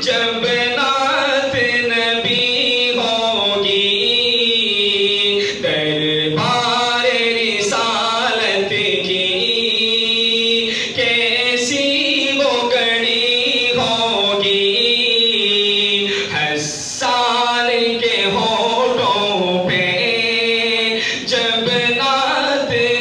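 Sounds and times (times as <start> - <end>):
man singing unaccompanied: 0.0 - 23.0.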